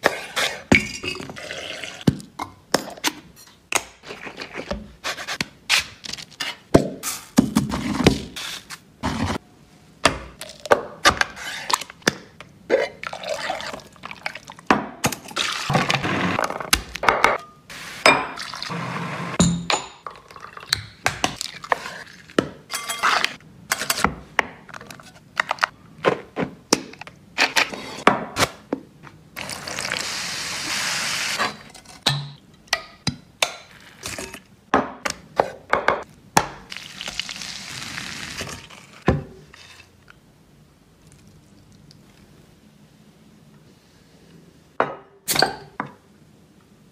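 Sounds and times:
utensils and bowls clinking: 0:22.7 - 0:24.0.

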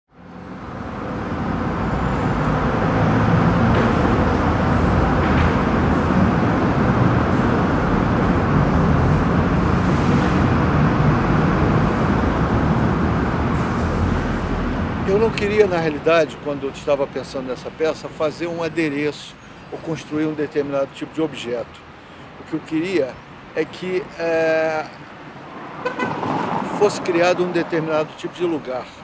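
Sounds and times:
road traffic passing: 0:00.1 - 0:29.0.

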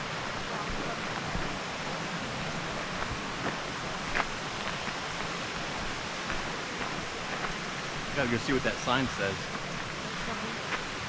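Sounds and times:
steady rushing hiss: 0:00.0 - 0:11.0
footsteps on gravel: 0:03.0 - 0:07.6.

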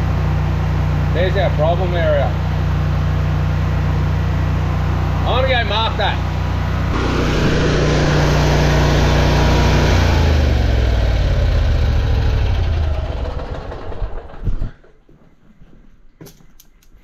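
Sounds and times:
engine running and shutting down: 0:06.7 - 0:14.6.

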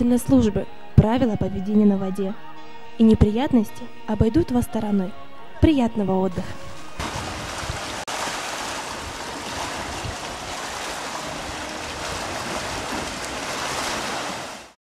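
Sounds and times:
small waves lapping over rock: 0:07.0 - 0:14.8.

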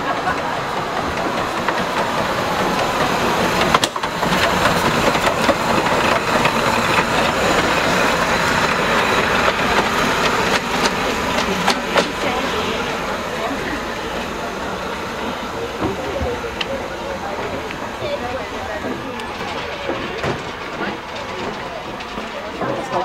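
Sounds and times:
steam locomotive passing: 0:00.0 - 0:23.0
wheels on rail: 0:00.0 - 0:23.0.

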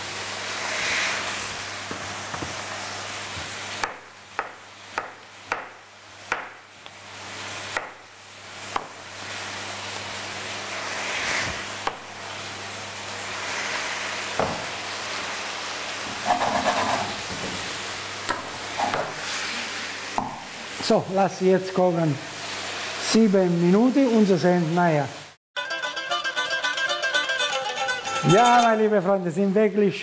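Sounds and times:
vegetables sizzling in frying pan: 0:00.0 - 0:25.4
knife chopping on cutting board: 0:03.4 - 0:06.6, 0:07.8 - 0:08.0, 0:08.7 - 0:09.0, 0:14.4 - 0:14.7, 0:18.3 - 0:19.2
utensil scraping in pan: 0:10.6 - 0:11.8, 0:16.0 - 0:17.7.

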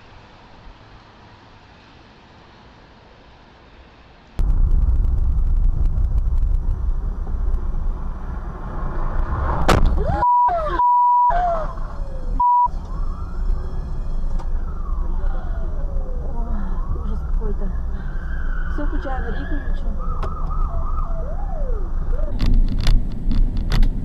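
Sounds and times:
car road and engine rumble: 0:00.0 - 0:24.0
high beeps: 0:10.1 - 0:11.4, 0:12.4 - 0:12.8.

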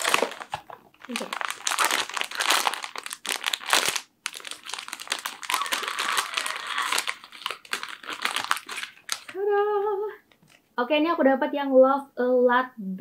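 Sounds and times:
plastic pouch crinkling: 0:00.0 - 0:09.5.

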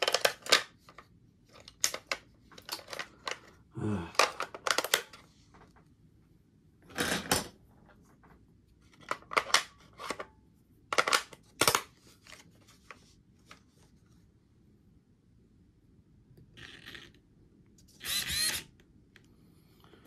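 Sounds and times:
tools clattering on a workbench: 0:06.9 - 0:07.6.

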